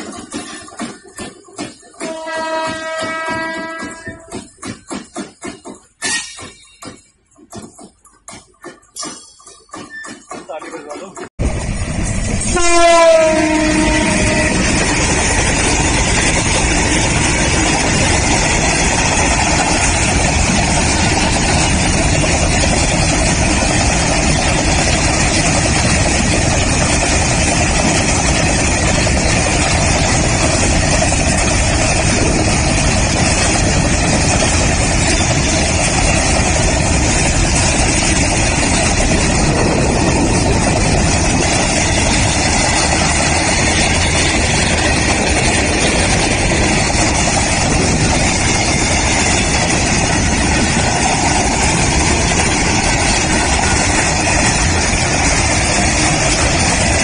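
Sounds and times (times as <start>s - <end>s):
train running past on rails: 0.0s - 57.0s
train horn: 2.0s - 4.3s, 12.4s - 14.7s.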